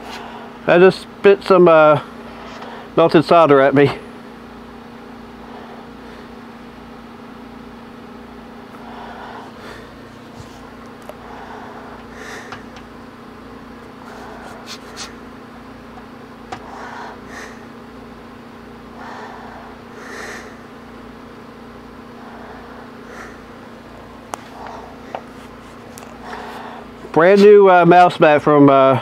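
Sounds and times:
steady hum: 0.0 - 29.0
person breathing: 5.4 - 6.4, 8.8 - 12.8, 14.0 - 15.2, 16.6 - 17.8, 18.9 - 20.8, 22.1 - 27.1.

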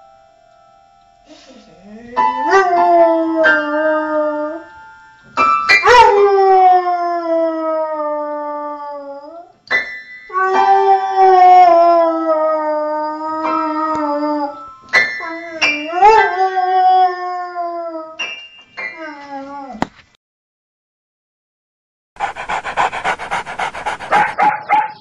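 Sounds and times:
dog howling: 22.2 - 24.7.

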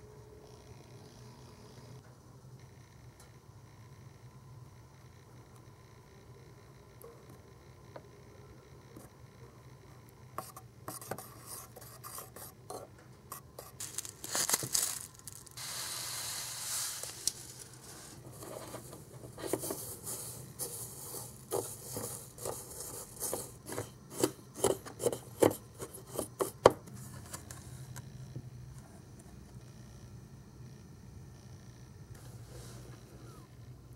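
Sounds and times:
steady rustle: 13.6 - 23.0.

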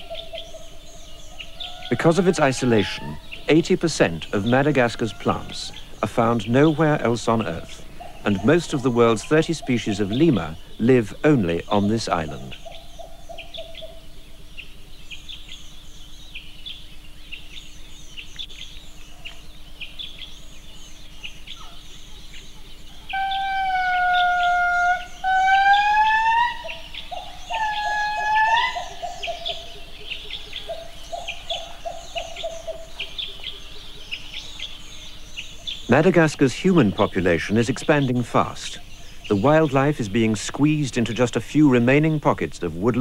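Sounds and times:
high chirping birds or insects: 0.0 - 43.0
lemur long wailing song: 1.3 - 12.6, 23.1 - 29.9.

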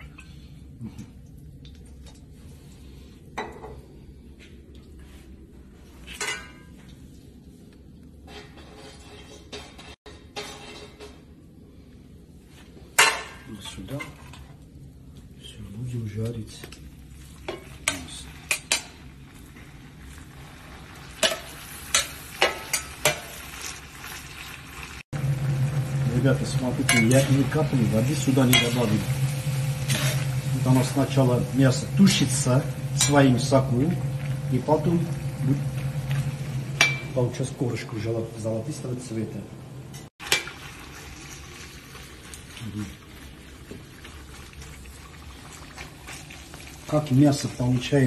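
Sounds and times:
metal cookware clinking: 6.1 - 6.7, 21.2 - 23.5, 26.8 - 29.0, 32.0 - 34.4, 36.1 - 37.3
meat sizzling in hot oil: 17.1 - 37.2, 40.2 - 48.0
low steady hum: 25.2 - 40.6.

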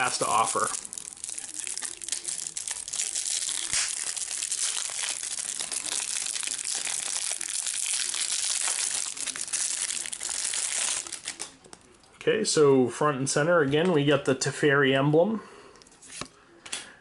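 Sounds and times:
plastic wrap crinkling and tearing: 0.0 - 11.9.

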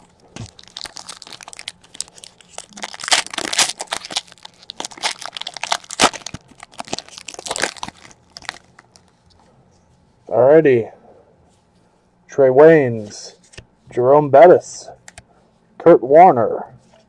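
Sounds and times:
foil wrapper tearing and crinkling: 0.3 - 9.1.

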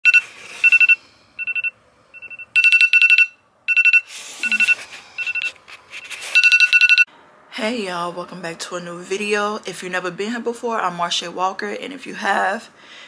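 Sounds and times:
smartphone alarm beeping: 0.0 - 5.6, 6.3 - 7.1.

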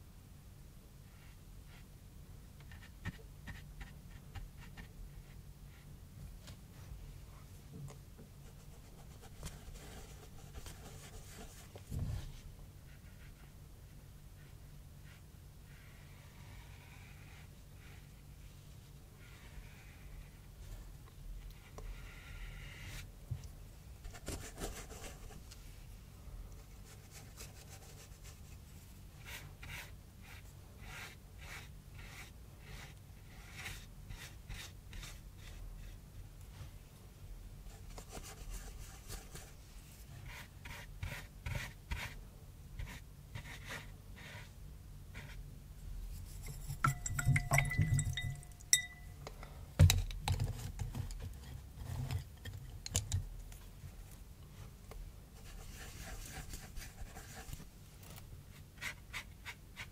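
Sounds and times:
paintbrush scratching on cardboard: 14.4 - 18.2, 21.6 - 23.1, 26.8 - 28.6, 29.2 - 36.0, 37.7 - 42.2, 42.8 - 45.4, 46.1 - 48.3, 55.4 - 57.7
glass dish clinking: 46.8 - 49.2.

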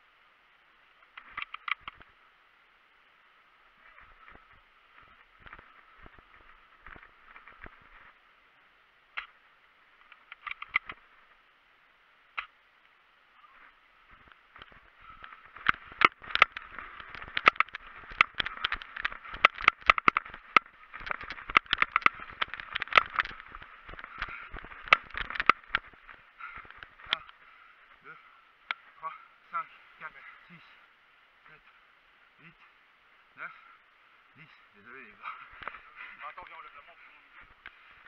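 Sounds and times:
footsteps in grass and brush: 13.6 - 27.4
gear rattling: 14.1 - 27.4.

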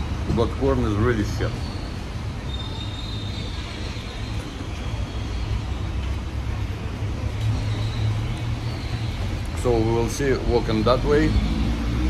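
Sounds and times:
low rumble of passing vehicles: 0.0 - 12.0.

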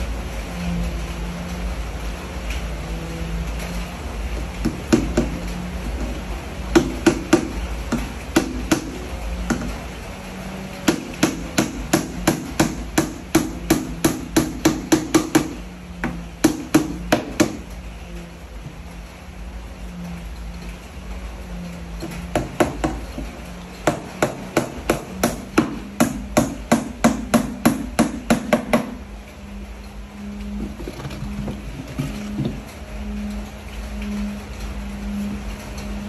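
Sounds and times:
hammer nailing wood: 4.6 - 9.8, 10.8 - 17.6, 22.0 - 29.0.

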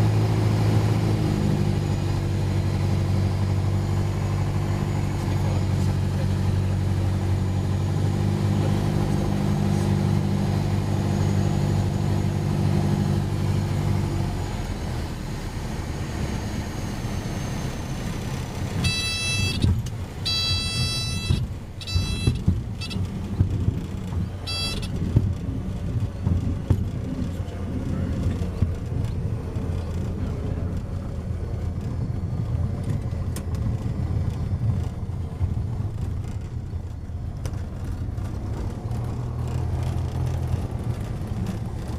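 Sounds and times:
light aircraft engine idling: 1.6 - 8.0, 8.9 - 41.9
wheels rumbling over grass: 18.6 - 41.9
cockpit warning tone beeping: 18.8 - 23.1, 24.4 - 25.0.

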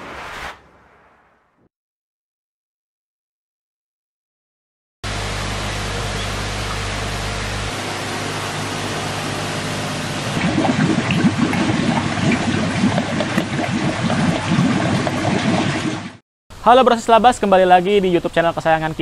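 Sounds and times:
water rushing: 5.0 - 16.2
eels splashing at surface: 9.2 - 16.2.

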